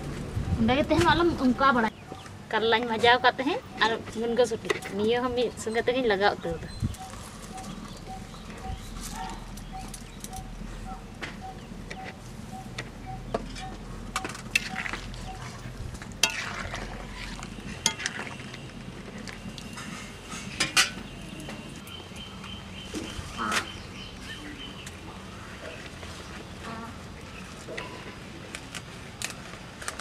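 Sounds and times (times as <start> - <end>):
curry simmering: 14.2 - 22.0.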